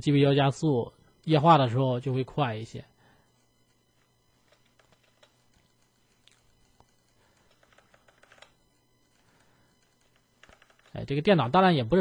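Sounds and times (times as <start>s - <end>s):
computer keyboard and mouse clicks: 4.4s - 9.2s, 9.8s - 11.0s.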